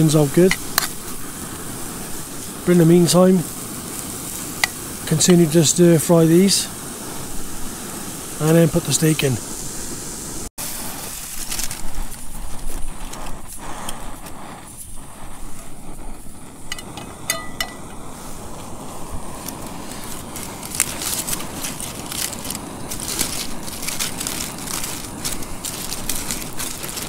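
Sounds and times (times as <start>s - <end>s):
aluminium foil crinkling: 10.8s - 16.2s, 19.2s - 27.0s
light clinks: 16.7s - 17.9s.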